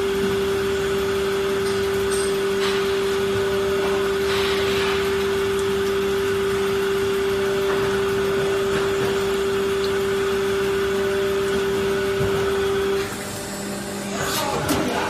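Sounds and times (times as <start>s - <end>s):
injection molding machine hum: 0.0s - 15.0s.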